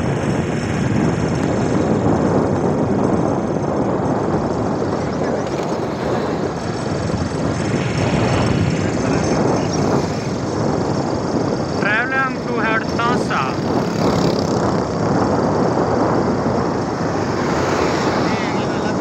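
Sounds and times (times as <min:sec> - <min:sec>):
road noise: 0:00.0 - 0:19.0
vehicle engine: 0:00.0 - 0:19.0
wind noise: 0:00.0 - 0:19.0.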